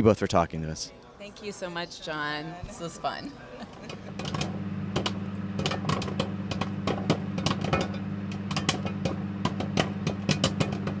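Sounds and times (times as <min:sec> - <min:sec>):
steady low hum: 0:02.0 - 0:11.0
popcorn popping: 0:03.9 - 0:11.0.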